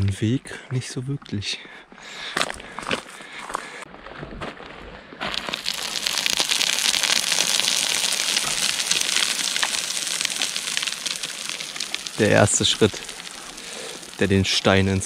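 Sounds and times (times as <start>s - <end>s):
boots crunching on loose gravel: 2.3s - 7.8s.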